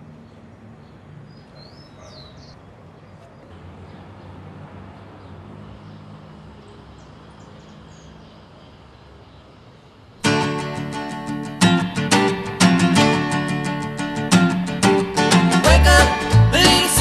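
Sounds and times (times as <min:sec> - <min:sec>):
bird chirps: 0:00.2 - 0:04.0.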